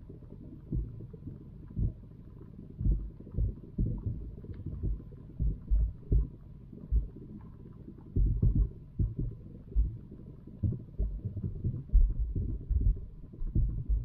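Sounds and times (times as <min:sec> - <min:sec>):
muffled underwater thumps: 0:00.7 - 0:01.1, 0:01.7 - 0:02.0, 0:02.8 - 0:07.2, 0:08.1 - 0:14.0.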